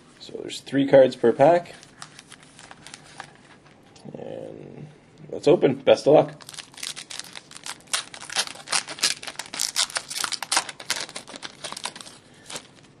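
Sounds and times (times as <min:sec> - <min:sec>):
foil wrapper crinkling and tearing: 0:06.4 - 0:12.9.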